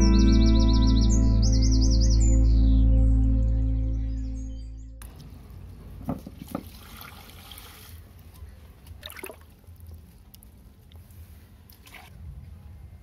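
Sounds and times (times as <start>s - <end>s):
fish splashing in water: 9.0s - 11.0s.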